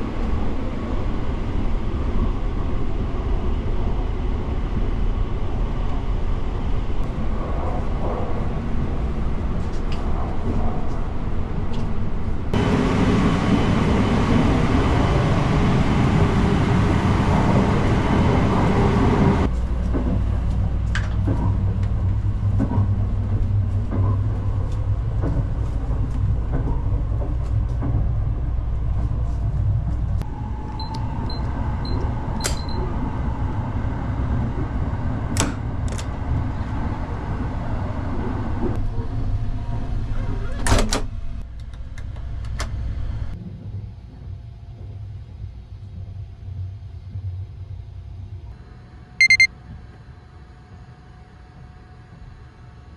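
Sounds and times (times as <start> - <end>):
train rumble inside carriage: 0.0 - 52.9
short high beeps: 49.2 - 49.5.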